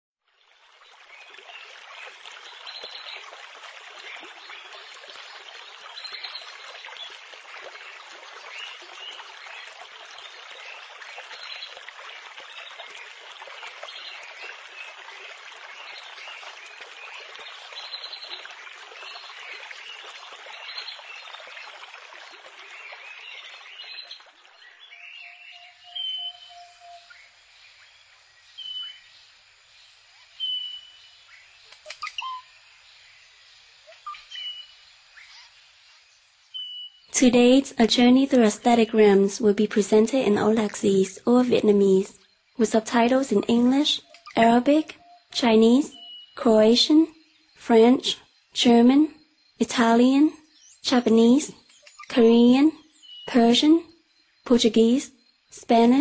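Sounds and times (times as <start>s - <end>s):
running water: 0.2s - 53.7s
birds chirping: 0.8s - 53.8s.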